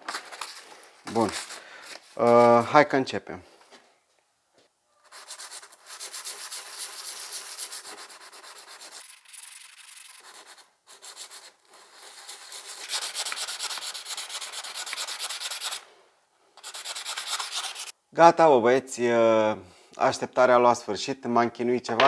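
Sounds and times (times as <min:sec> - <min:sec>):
stone scraping on sandpaper: 0:05.1 - 0:15.8, 0:16.6 - 0:17.9.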